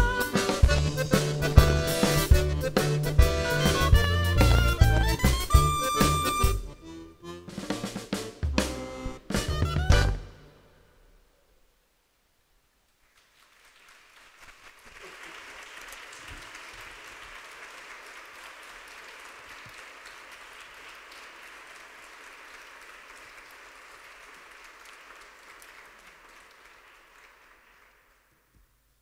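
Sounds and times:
audience applauding: 0.3s - 6.5s, 13.0s - 28.5s.

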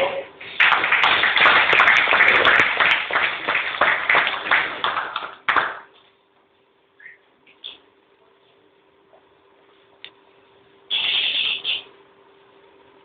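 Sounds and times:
audience clapping: 0.4s - 6.0s.

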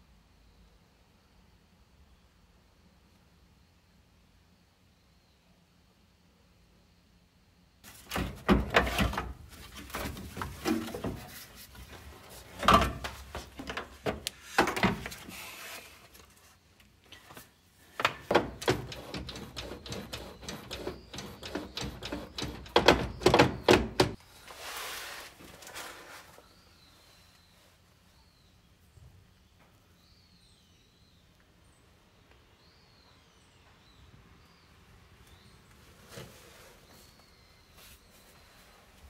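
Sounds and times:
tools knocking and clanking on metal: 7.9s - 11.4s, 12.6s - 15.2s, 18.0s - 24.2s.

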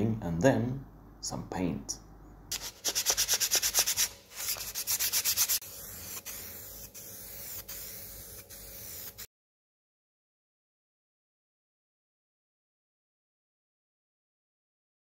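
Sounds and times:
aerosol spray can hissing: 2.5s - 9.3s
hand sanding strokes: 2.5s - 9.3s.

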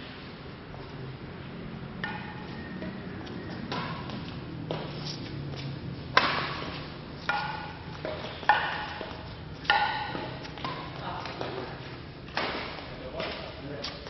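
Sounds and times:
rackets hitting shuttlecock: 2.0s - 5.0s, 5.6s - 13.6s.

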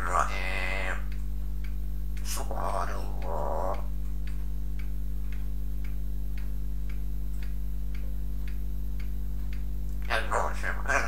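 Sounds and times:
low electrical hum: 0.0s - 11.0s
regular ticking clicks: 0.0s - 11.0s.

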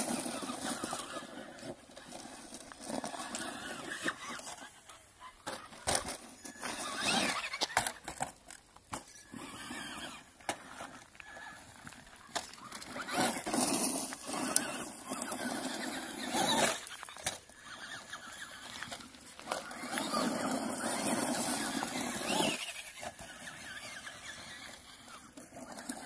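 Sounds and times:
tyres scrabbling on dirt: 0.0s - 26.0s
electric motor whining: 9.1s - 26.0s.

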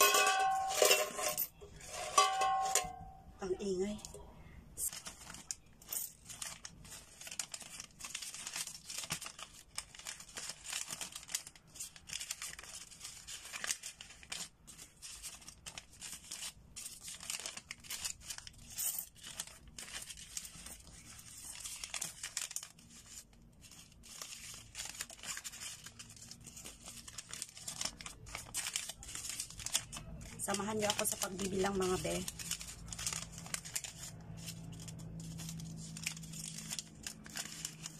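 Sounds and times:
paper banknotes crinkling: 4.8s - 37.9s.

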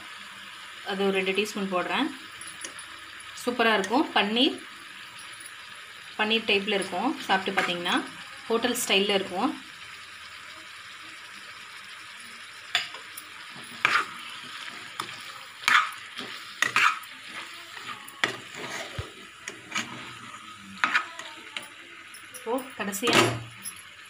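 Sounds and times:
chicken sizzling in oil: 0.0s - 24.0s
metal spatula scraping pot: 6.8s - 8.9s, 12.8s - 21.7s.

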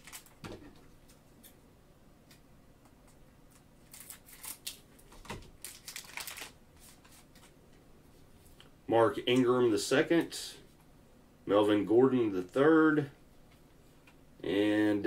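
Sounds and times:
plastic wrapper crinkling: 0.0s - 0.4s, 3.8s - 7.3s.

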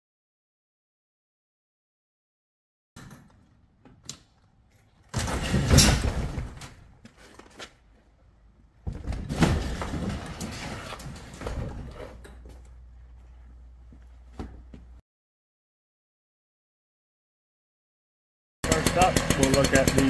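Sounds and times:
garage door rattling and scraping: 4.6s - 8.2s, 8.8s - 13.0s.

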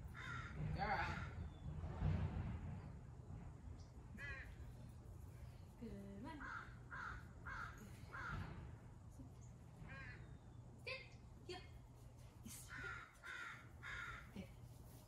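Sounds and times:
distant crow cawing: 0.1s - 1.4s, 6.4s - 8.6s, 12.7s - 14.4s.

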